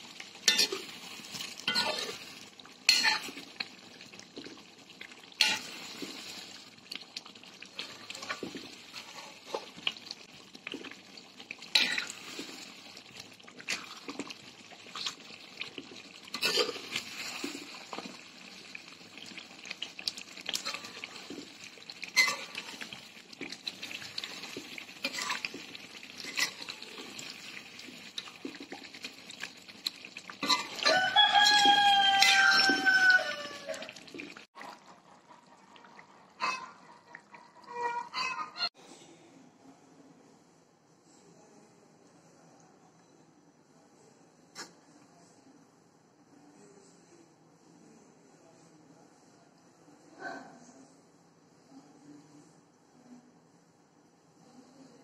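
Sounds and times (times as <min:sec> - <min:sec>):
curry sizzling and bubbling: 0:00.0 - 0:38.8
metal spoon scraping pan: 0:00.4 - 0:02.2, 0:02.9 - 0:03.5, 0:05.4 - 0:06.5, 0:11.7 - 0:12.7, 0:16.2 - 0:18.1, 0:20.5 - 0:23.0, 0:23.8 - 0:27.4, 0:30.4 - 0:33.1.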